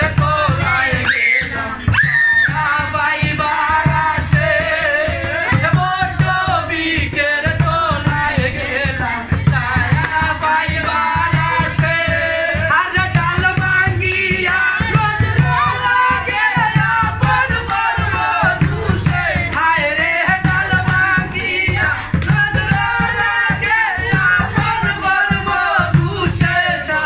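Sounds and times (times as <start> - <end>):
man singing: 0.0 - 27.0
hand-drumming on plastic container: 1.9 - 27.0.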